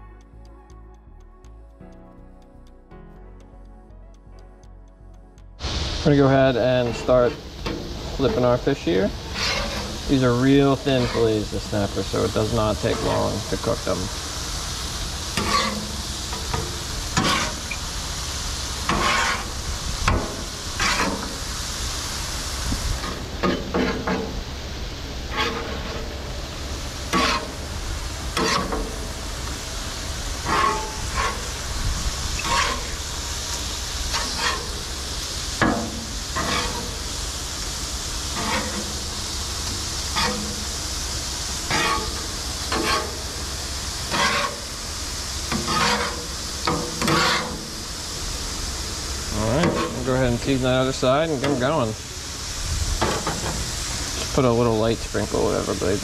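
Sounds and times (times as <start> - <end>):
fish fillets sizzling in oil: 5.6 - 56.0
metal spatula scraping griddle: 6.1 - 21.6, 23.0 - 24.4, 25.2 - 29.6, 30.3 - 37.2, 38.2 - 48.0, 49.3 - 51.9.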